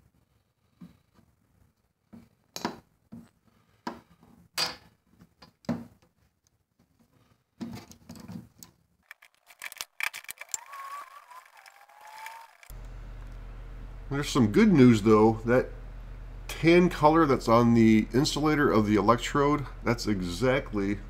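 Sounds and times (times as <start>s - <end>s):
rustling: 6.2s - 13.4s
hand ratchet clicking: 9.1s - 12.7s.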